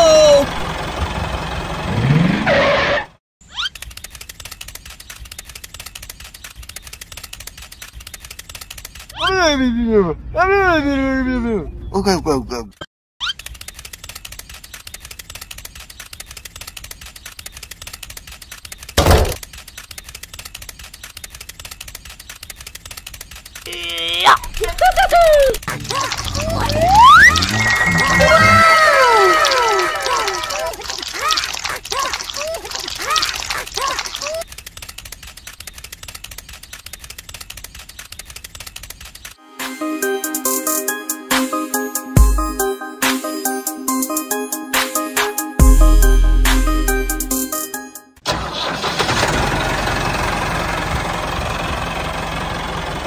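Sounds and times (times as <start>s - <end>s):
high-pitched squeaky chirps: 3.4s - 3.8s, 13.2s - 13.7s, 23.7s - 30.7s
geared motor clicking rattle: 3.6s - 9.2s, 13.2s - 23.7s, 33.8s - 39.4s
loud thump: 19.0s - 19.4s
electronic music: 24.2s - 29.2s, 39.4s - 48.2s.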